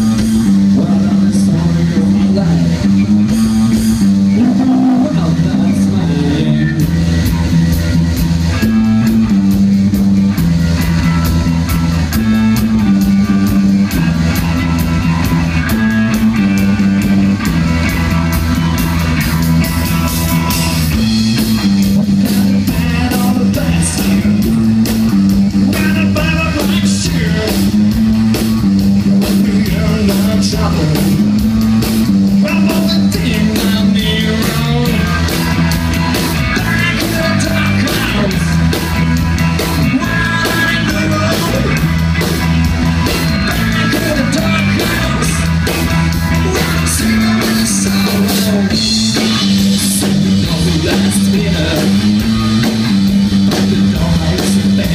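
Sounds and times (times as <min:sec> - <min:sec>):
live rock band playing: 0:00.0 - 0:54.9
man singing: 0:00.1 - 0:03.1, 0:04.3 - 0:07.0, 0:21.9 - 0:24.8, 0:25.6 - 0:27.8, 0:29.2 - 0:31.4, 0:32.3 - 0:38.9, 0:39.6 - 0:42.1, 0:43.0 - 0:52.5, 0:53.7 - 0:54.9.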